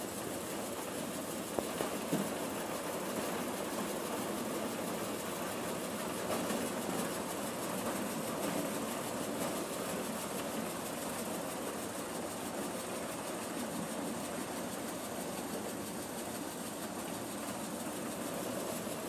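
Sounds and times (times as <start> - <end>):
maize sheller drone and rattle: 0.0 - 19.0.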